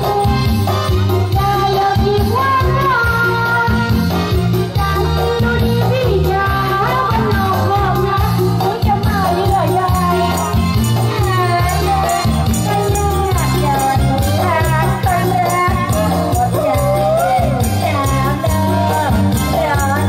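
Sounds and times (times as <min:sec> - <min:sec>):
music with bass beat and melody: 0:00.0 - 0:20.0.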